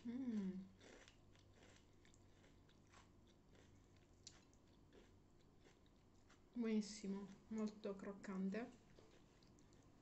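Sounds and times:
crunching fried onion ring: 0.6 - 6.6.

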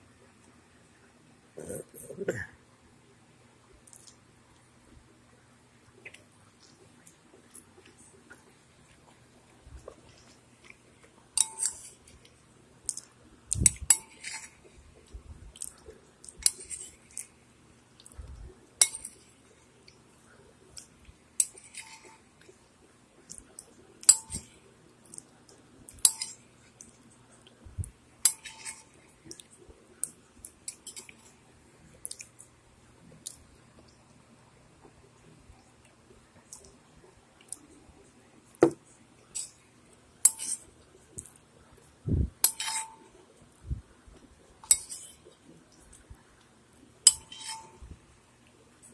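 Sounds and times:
metal spoon clinking ceramic bowl: 11.4 - 11.9, 26.0 - 26.4, 28.3 - 28.9, 42.4 - 43.1, 47.1 - 47.8.

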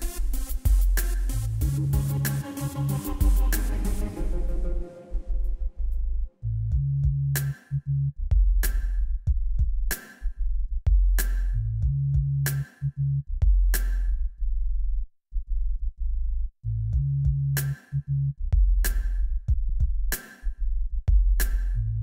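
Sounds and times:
drum machine beat: 0.0 - 4.7, 6.7 - 7.6, 8.3 - 10.2, 10.9 - 12.7, 13.4 - 14.1, 17.0 - 17.8, 18.6 - 20.4, 21.1 - 21.8
deep synth bass line: 0.0 - 22.0.

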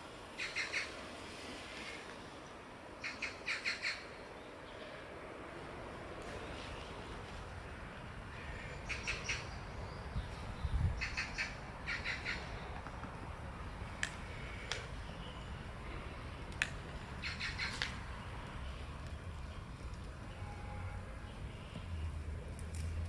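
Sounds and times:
bird chattering calls: 0.4 - 0.9, 3.0 - 4.1, 8.8 - 9.6, 11.0 - 12.6, 17.2 - 17.9.

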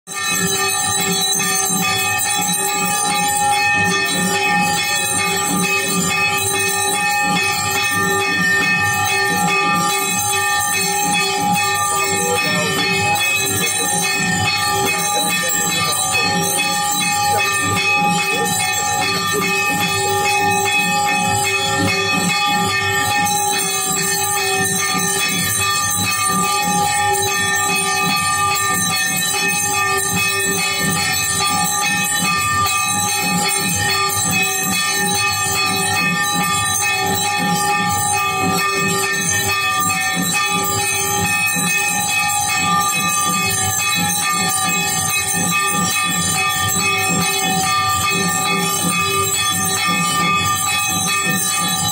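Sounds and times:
temple bells clanging: 0.1 - 51.9.

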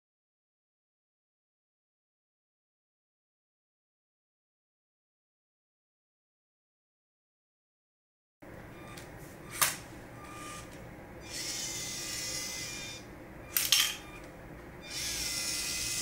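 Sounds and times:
small electric motors whirring: 10.2 - 13.0, 14.8 - 16.0.

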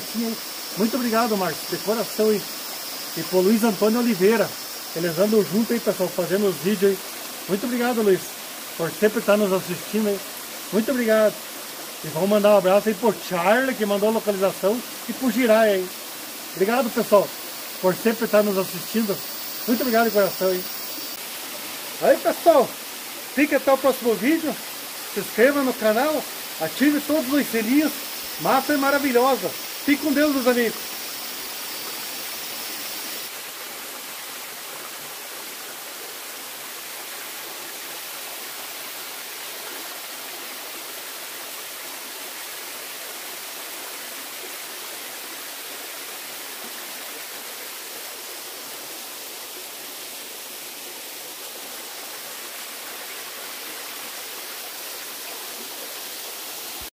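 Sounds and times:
waterfall rushing: 0.0 - 34.2.

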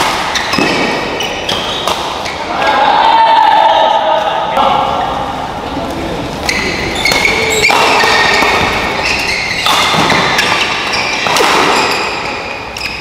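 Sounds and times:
racket hitting shuttlecock: 0.0 - 2.4, 6.4 - 12.3
crowd noise: 0.0 - 13.0.

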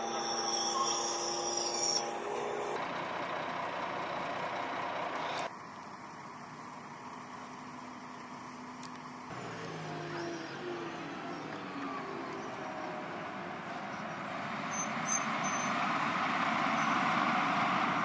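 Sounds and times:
diesel engine running: 1.7 - 14.4.

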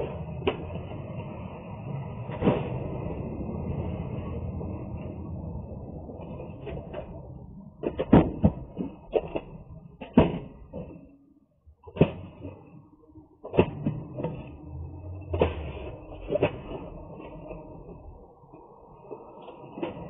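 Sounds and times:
low steady rumble: 0.0 - 20.0
boxes knocking and thumping: 7.8 - 11.0, 11.8 - 12.6, 13.4 - 14.5.

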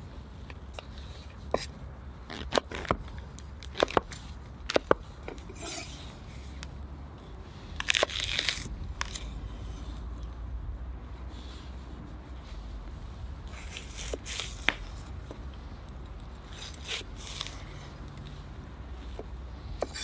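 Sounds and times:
knife crunching through onion: 1.5 - 6.1, 7.7 - 9.9, 16.5 - 18.2.

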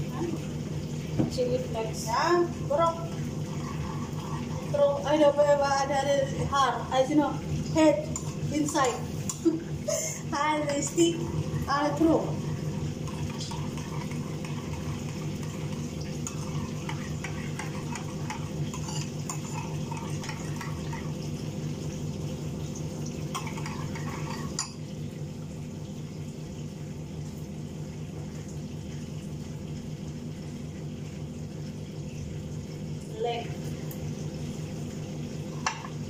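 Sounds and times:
steady low hum: 0.0 - 36.0
metal spoon scraping frying pan: 16.9 - 20.4.

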